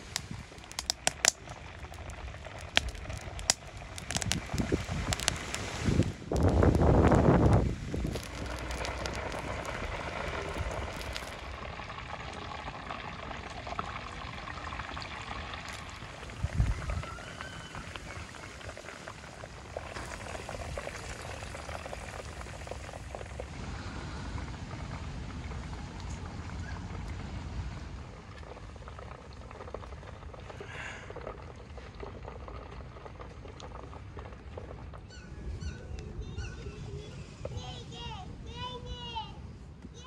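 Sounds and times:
oil bubbling and crackling: 0:00.0 - 0:37.6.

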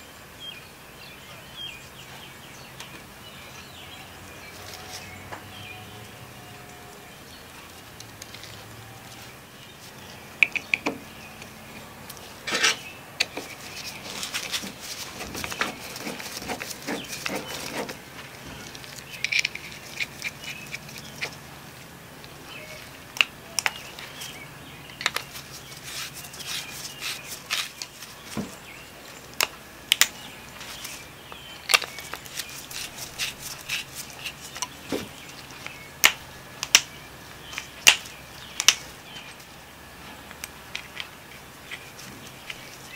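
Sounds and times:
soft rustling: 0:11.7 - 0:21.9, 0:25.2 - 0:29.3.

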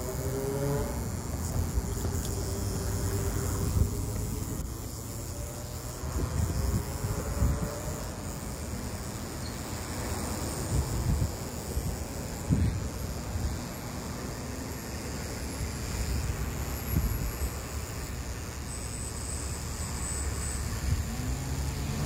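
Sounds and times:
high-pitched insect chorus: 0:00.0 - 0:22.0
wind rumble on microphone: 0:00.4 - 0:04.7, 0:05.8 - 0:08.3, 0:10.6 - 0:13.8, 0:15.7 - 0:17.9.

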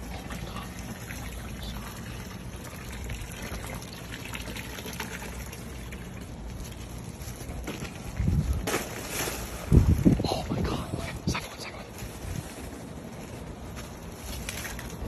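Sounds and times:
hose pouring into tub of water: 0:00.0 - 0:07.5.

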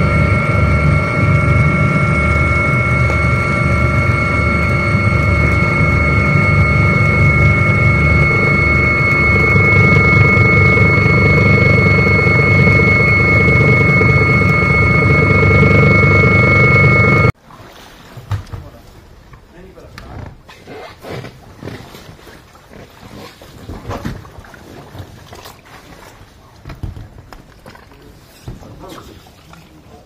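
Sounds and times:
helicopter rotor and engine: 0:00.0 - 0:17.4
high turbine whine: 0:00.0 - 0:17.4.

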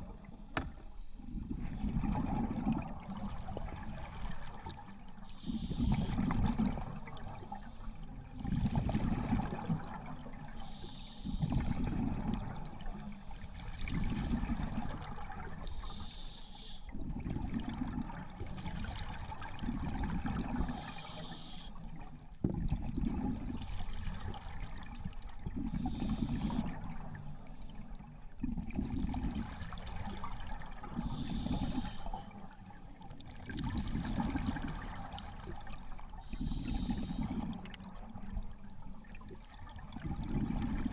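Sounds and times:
regulator hiss on inhale: 0:00.0 - 0:01.8, 0:03.8 - 0:08.2, 0:10.1 - 0:11.7, 0:12.4 - 0:13.6, 0:15.6 - 0:16.9, 0:18.2 - 0:19.3, 0:20.7 - 0:22.4, 0:24.2 - 0:28.1, 0:29.4 - 0:33.3, 0:34.9 - 0:37.5, 0:38.3 - 0:39.7
exhaled bubbles rushing: 0:01.5 - 0:03.8.

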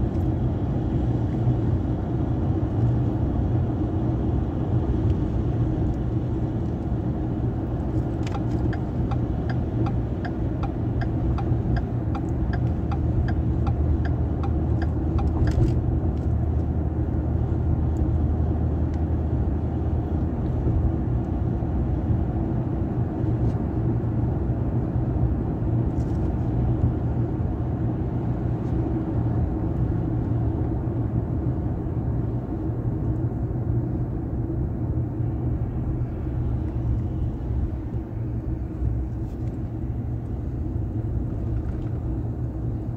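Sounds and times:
engine and tyre rumble in cabin: 0:00.0 - 0:42.9
even ticks: 0:08.3 - 0:15.6.

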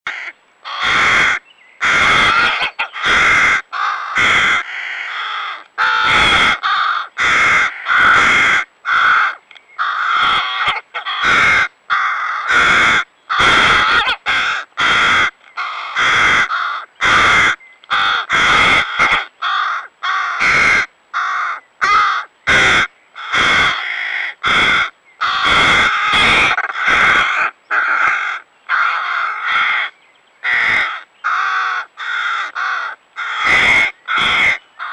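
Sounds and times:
crow fledglings rasping caws: 0:00.1 - 0:34.9.

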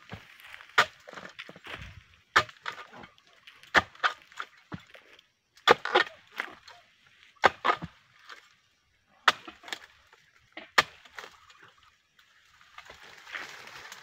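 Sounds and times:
tool chopping into stalks: 0:05.6 - 0:06.6.

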